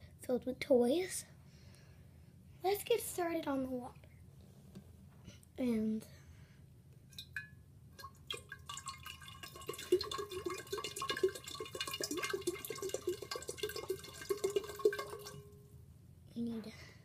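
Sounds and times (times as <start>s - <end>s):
water pouring into glass bowl: 8.0s - 15.6s.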